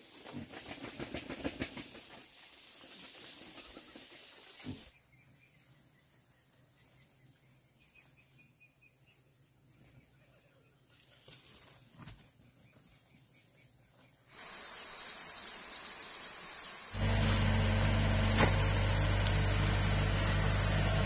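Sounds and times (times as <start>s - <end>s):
faint insect trilling: 14.3s - 17.0s
high insect buzz: 14.3s - 17.0s.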